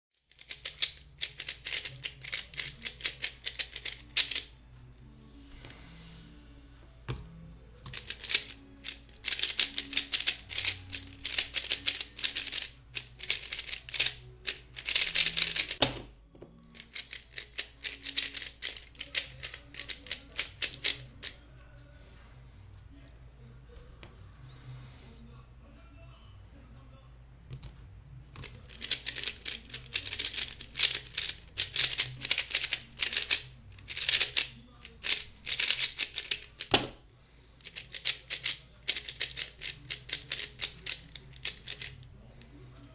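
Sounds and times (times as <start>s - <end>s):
puzzle cube turning clatter: 0.3s - 4.5s, 7.9s - 15.8s, 16.7s - 21.4s, 28.4s - 36.8s, 37.6s - 42.1s.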